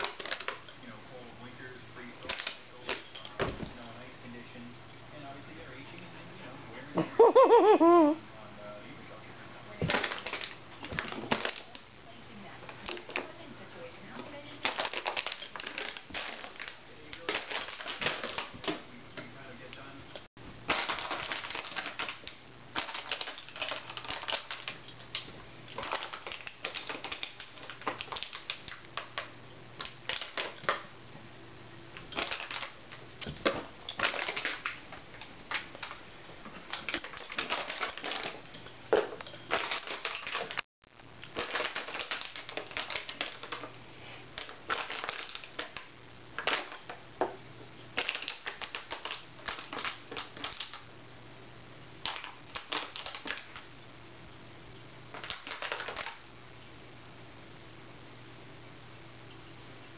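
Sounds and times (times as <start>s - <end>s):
dog chewing plastic bottle: 44.4s - 45.8s.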